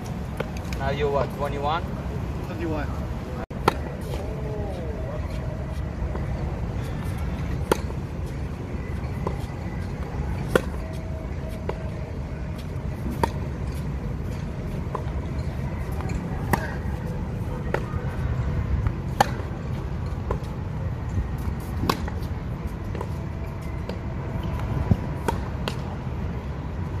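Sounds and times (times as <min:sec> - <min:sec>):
racket hitting tennis ball: 0:03.6 - 0:04.2, 0:07.4 - 0:08.0, 0:10.4 - 0:10.9, 0:13.0 - 0:13.8, 0:15.9 - 0:17.0, 0:19.0 - 0:20.5, 0:21.4 - 0:22.3
tennis ball bouncing: 0:03.6 - 0:04.2, 0:07.0 - 0:12.0, 0:12.6 - 0:18.0, 0:18.8 - 0:20.6, 0:21.4 - 0:22.3, 0:23.8 - 0:25.9.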